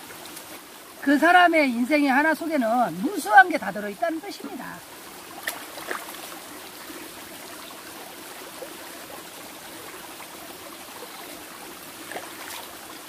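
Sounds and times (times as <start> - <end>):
stream flowing over stones: 0.0 - 13.0.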